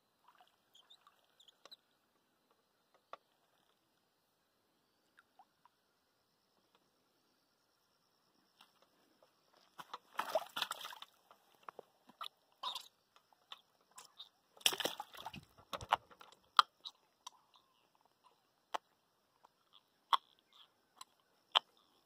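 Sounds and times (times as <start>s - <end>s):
splashing in shallow water: 9.8s - 11.5s, 14.6s - 16.1s.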